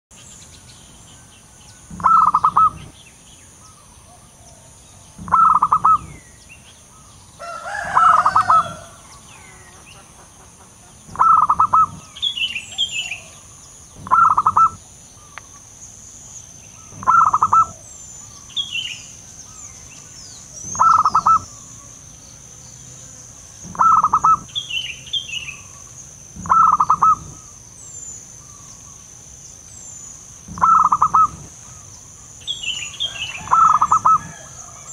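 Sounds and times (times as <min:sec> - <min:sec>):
small birds chirping: 0:00.1 - 0:34.9
dove cooing: 0:01.9 - 0:02.9, 0:04.1 - 0:06.2, 0:07.4 - 0:09.7, 0:10.5 - 0:14.8, 0:16.9 - 0:17.9, 0:20.6 - 0:21.6, 0:23.6 - 0:24.6, 0:26.4 - 0:27.5, 0:30.5 - 0:31.8, 0:33.0 - 0:34.9.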